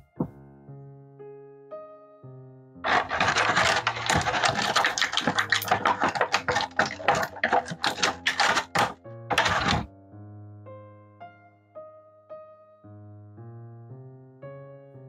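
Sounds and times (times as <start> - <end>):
soft piano music: 0.0 - 2.8, 9.9 - 15.0
packaging crinkling: 2.8 - 9.9.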